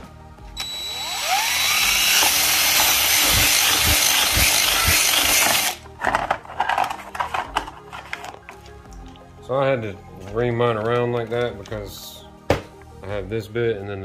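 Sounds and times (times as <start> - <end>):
power drill drilling through plastic: 0.6 - 5.8
plastic clattering: 5.4 - 8.7.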